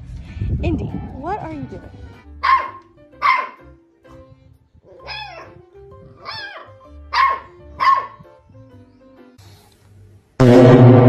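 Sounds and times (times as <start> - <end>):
background music: 0.0 - 11.0
puppy barking and yelping: 2.4 - 3.7, 4.8 - 8.3.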